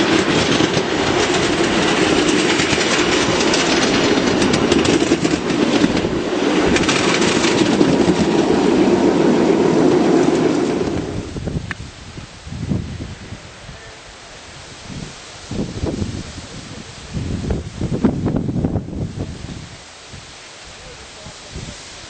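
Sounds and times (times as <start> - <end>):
train wheels rumbling on rails: 0.0 - 22.0
clicks over rail joints: 0.1 - 8.4.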